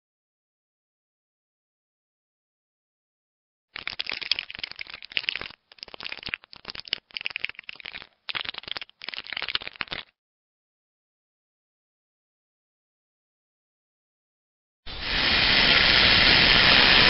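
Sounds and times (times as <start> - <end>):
scratchy crackling clicking: 3.8 - 10.1.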